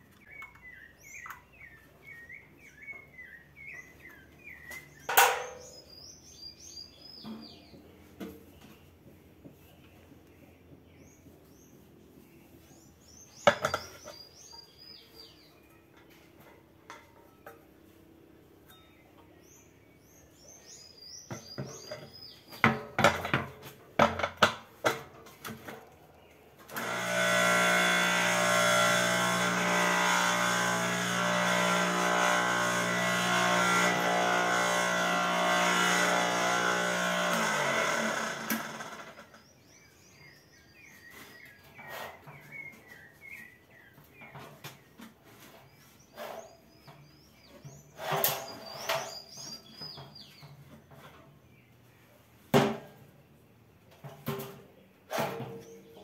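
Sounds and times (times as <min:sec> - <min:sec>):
blender motor running: 0:26.7 - 0:39.3.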